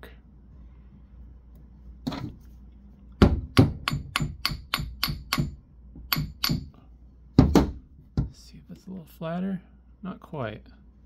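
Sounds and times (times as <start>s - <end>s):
hammers clinking together: 3.6s - 6.7s.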